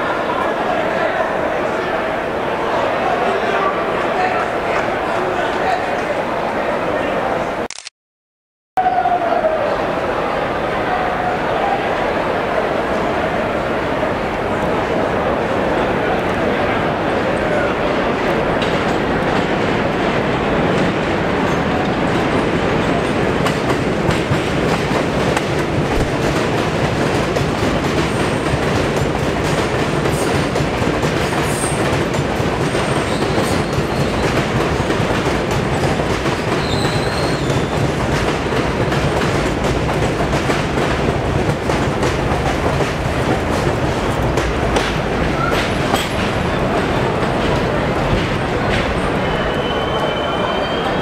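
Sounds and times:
subway wheels clattering over rails: 9.0 - 51.0
faint high wheel squeals: 49.2 - 51.0.

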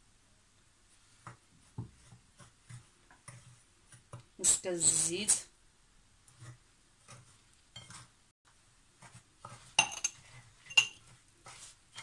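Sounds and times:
spoon scraping ceramic bowl: 6.3 - 8.2, 9.0 - 12.0
spoon clinking on bowl: 9.8 - 11.0.

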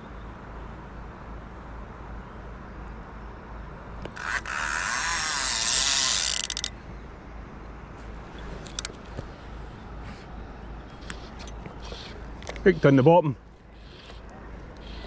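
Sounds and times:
fishing reel ratchet buzzing: 4.0 - 6.7.

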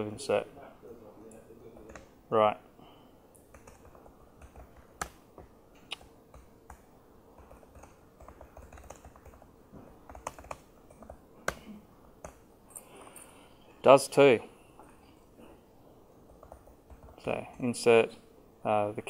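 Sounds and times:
typing on laptop keyboard: 1.8 - 2.1, 3.4 - 12.4, 16.2 - 17.3.

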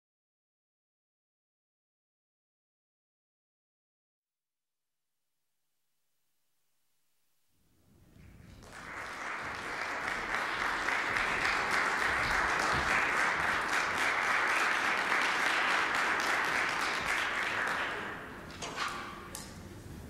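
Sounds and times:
audience applauding: 8.3 - 18.4.

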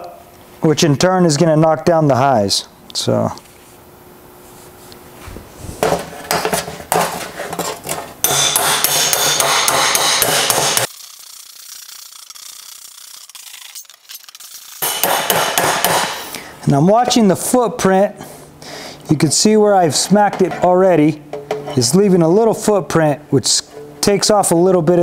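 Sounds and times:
hammer slapping sheet metal: 8.3 - 10.9, 14.8 - 16.2.

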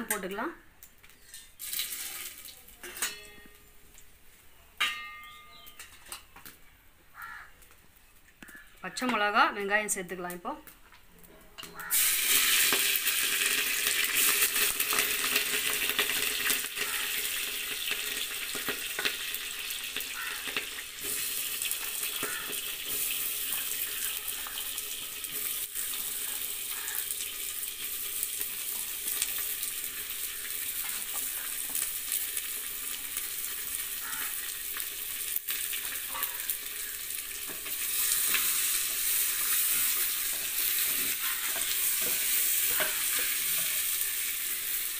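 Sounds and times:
vegetables sizzling in hot oil: 1.2 - 3.5, 11.8 - 44.9.

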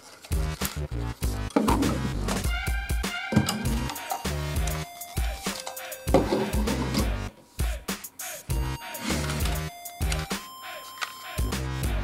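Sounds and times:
electronic music with heavy bass: 0.4 - 5.5, 11.4 - 12.0.

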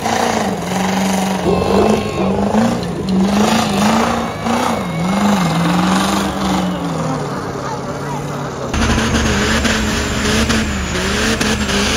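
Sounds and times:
truck engine revving high: 0.0 - 7.6, 8.5 - 11.9
steady rushing noise: 8.8 - 11.9.

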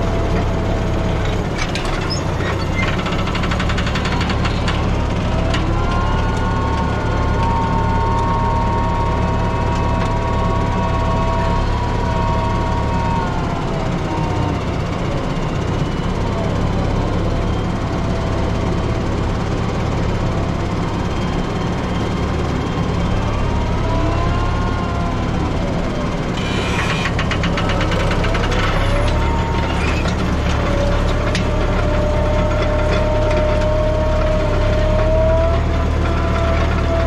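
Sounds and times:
tractor engine running: 0.0 - 37.0
rapid rattling clatter: 1.3 - 5.8, 26.1 - 33.6
gliding whining tone: 2.1 - 37.0.

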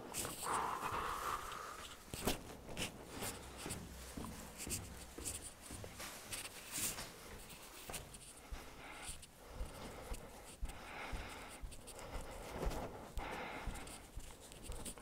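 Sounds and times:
clothing rustling: 0.0 - 9.3.

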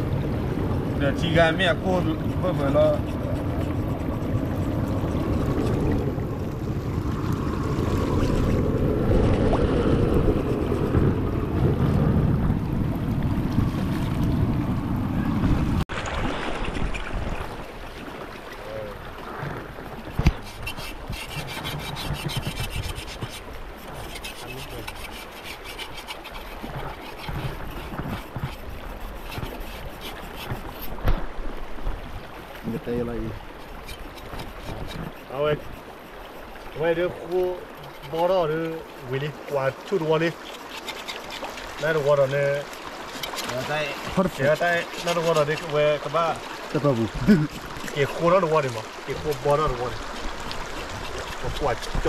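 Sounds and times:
stream rushing over rocks: 0.0 - 52.0
knife scraping carcass: 1.5 - 4.3, 20.1 - 31.0, 33.6 - 39.2, 39.8 - 45.8, 47.2 - 49.6, 50.4 - 52.0.

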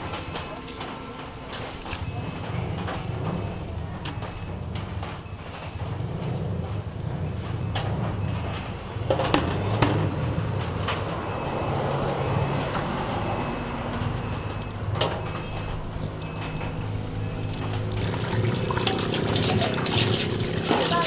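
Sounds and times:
low mechanical hum: 0.0 - 21.0.

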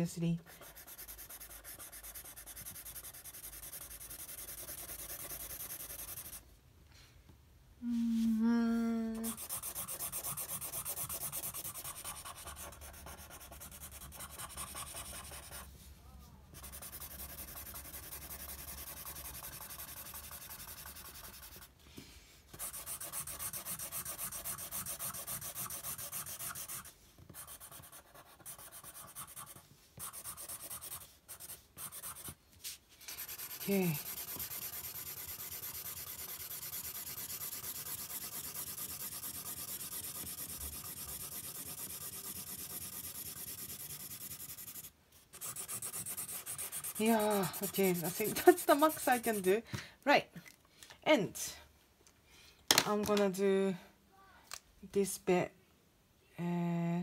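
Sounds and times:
marker scratching on paper: 0.4 - 6.4, 9.2 - 15.8, 16.6 - 21.7, 22.5 - 49.6.

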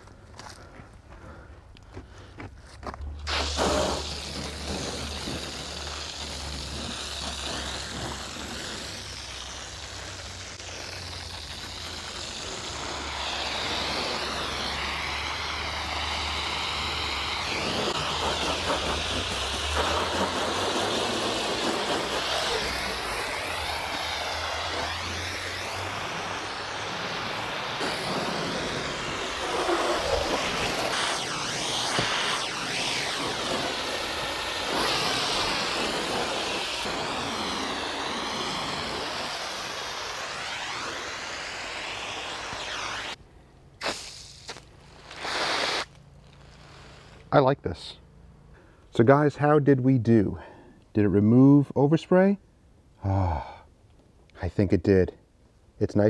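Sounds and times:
hose spray hitting car: 3.2 - 43.2, 43.8 - 47.3.

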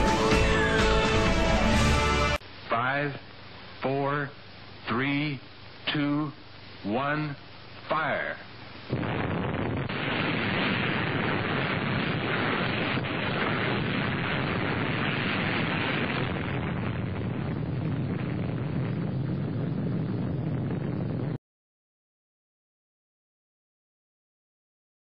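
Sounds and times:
explosion rumble and hiss: 8.8 - 21.4.

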